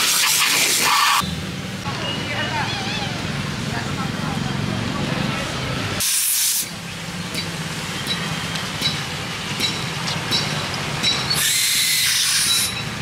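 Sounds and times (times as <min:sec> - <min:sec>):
foam sprayer hissing: 0:06.0 - 0:06.7.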